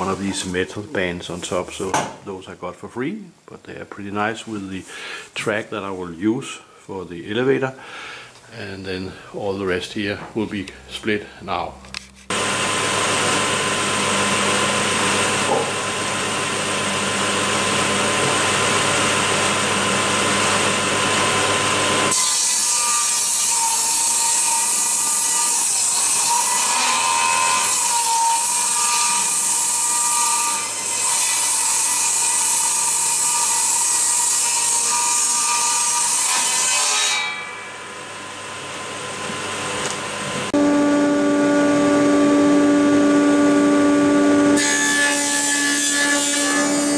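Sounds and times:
table saw ripping wood: 11.9 - 46.9.

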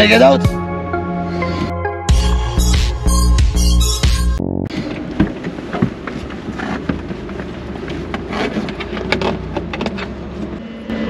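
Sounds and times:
low vehicle rumble: 0.0 - 11.0.

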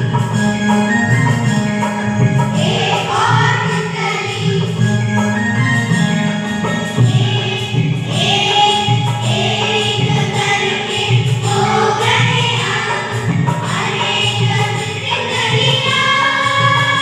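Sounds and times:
electronic keyboard: 0.0 - 17.0
children's choir singing: 2.5 - 5.4, 6.9 - 17.0.

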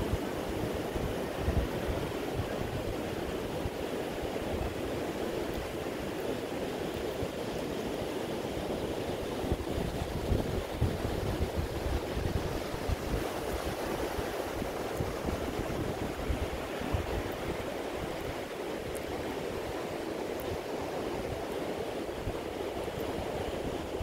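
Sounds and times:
ocean surf breaking: 0.0 - 24.0
wind buffeting microphone: 0.0 - 24.0.

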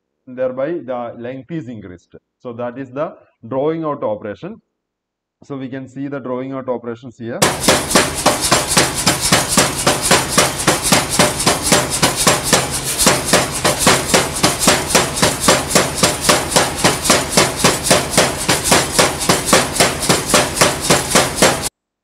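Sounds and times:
power hammer striking hot steel: 7.4 - 21.7.

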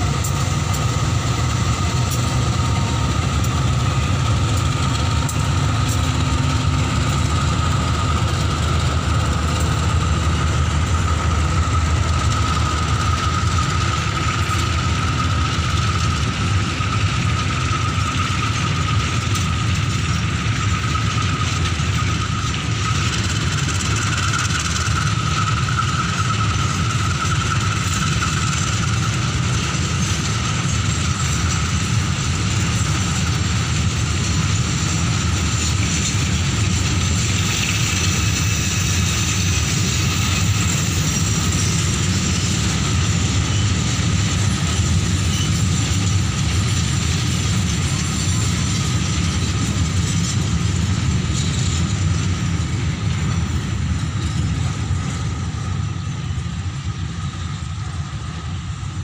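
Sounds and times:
high even whine: 0.0 - 59.0
low locomotive engine rumble: 0.0 - 59.0
tank wagons rolling on rails: 0.0 - 59.0.

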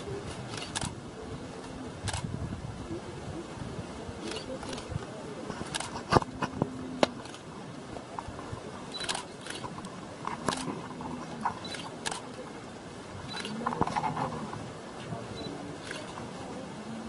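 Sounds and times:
camera shutters clicking: 0.5 - 1.0, 5.6 - 6.3, 9.0 - 9.7, 10.4 - 10.7.

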